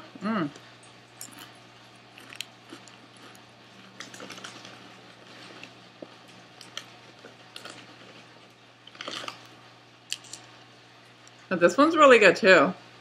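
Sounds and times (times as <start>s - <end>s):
chips being chewed: 1.1s - 11.4s.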